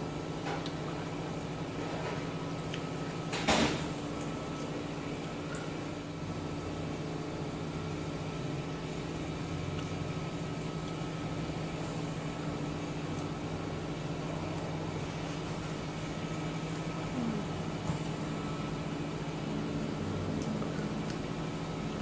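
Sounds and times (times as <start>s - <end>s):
low mechanical hum: 0.0s - 22.0s.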